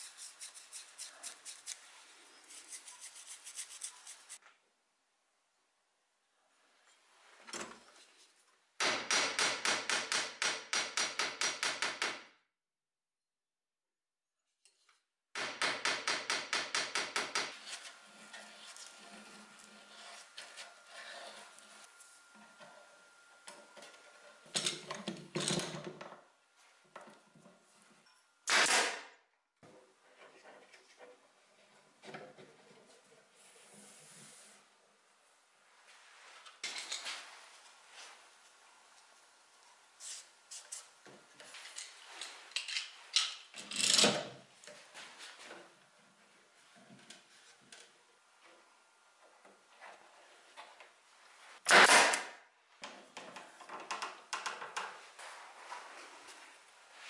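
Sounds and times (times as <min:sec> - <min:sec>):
glue brush scratching on wood: 0:00.0 - 0:04.4.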